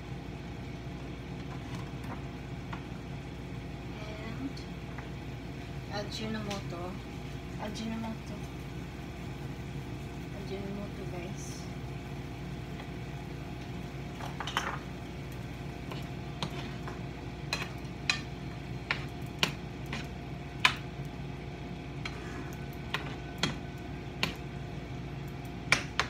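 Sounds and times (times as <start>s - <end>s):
light sizzling: 0.0s - 26.0s
steady hum: 0.0s - 26.0s
utensil scraping frying pan: 15.7s - 20.8s, 21.9s - 24.5s.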